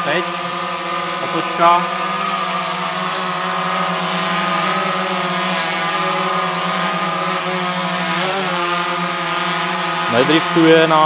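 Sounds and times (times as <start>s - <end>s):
drone propellers buzzing hum: 0.0s - 11.0s.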